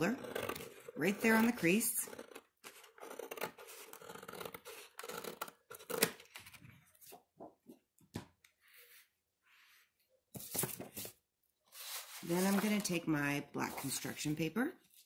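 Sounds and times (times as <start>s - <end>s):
scissors cutting cardboard folder: 0.0s - 6.7s
paper handling: 10.4s - 11.2s, 11.8s - 13.0s.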